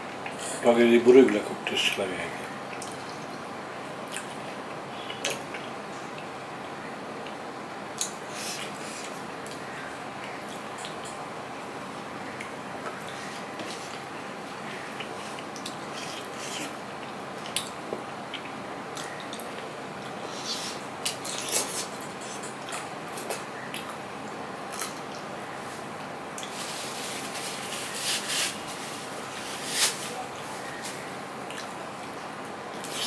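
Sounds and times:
steady hiss: 25.2s - 33.0s.

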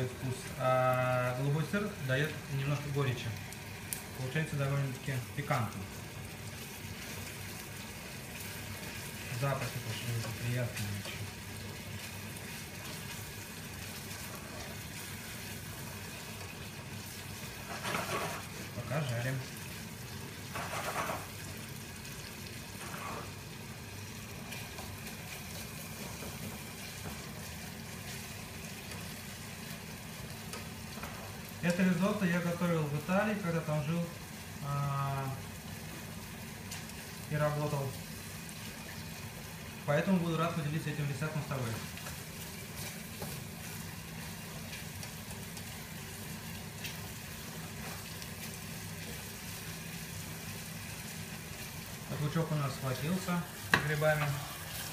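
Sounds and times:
onion and mushrooms sizzling: 0.0s - 54.9s
spatula scraping pan: 17.6s - 18.5s.

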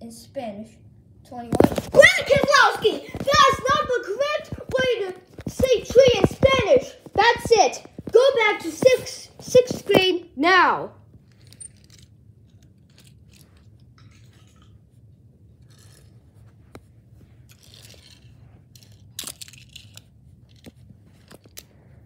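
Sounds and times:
low steady hum: 0.0s - 22.0s
toy cars clicking and rustling: 1.6s - 10.1s, 11.2s - 14.7s, 15.6s - 16.2s, 17.4s - 21.8s.

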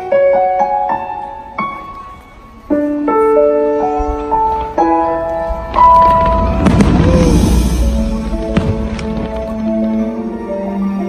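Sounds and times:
slow music with held notes: 0.0s - 7.0s
fireworks booms: 5.4s - 10.0s
sharp fireworks bangs: 5.5s - 10.0s.

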